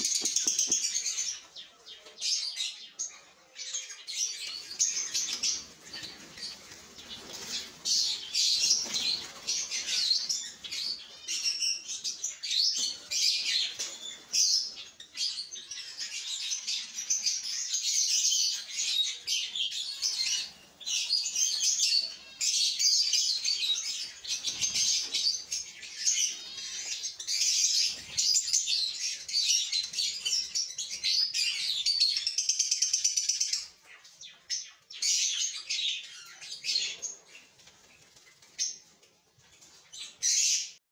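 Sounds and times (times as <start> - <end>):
lovebirds chirping: 0.0 - 17.4.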